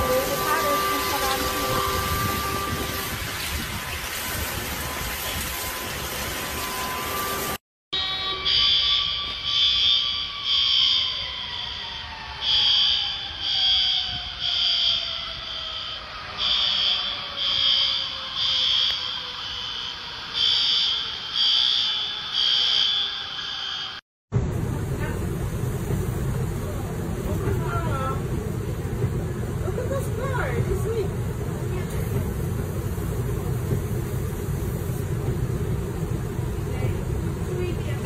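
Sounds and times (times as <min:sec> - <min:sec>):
heavy rain: 0:00.0 - 0:07.6, 0:24.4 - 0:38.0
rushing floodwater: 0:00.0 - 0:07.6
smoke alarm beeping: 0:08.0 - 0:11.7, 0:12.4 - 0:23.9.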